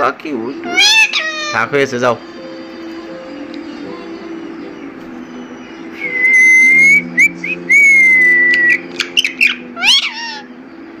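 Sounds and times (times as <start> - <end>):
parakeet sharp calls: 0.6 - 1.8, 8.7 - 10.6
parakeet whistling: 0.6 - 1.8, 5.3 - 10.6
parakeet squawks: 0.6 - 1.9, 8.7 - 10.6.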